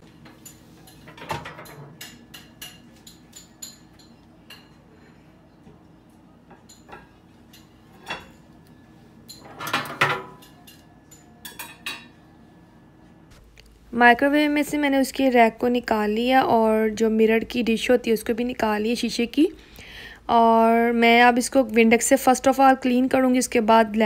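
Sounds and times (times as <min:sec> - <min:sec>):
glass plate clinking: 0:06.5 - 0:08.5.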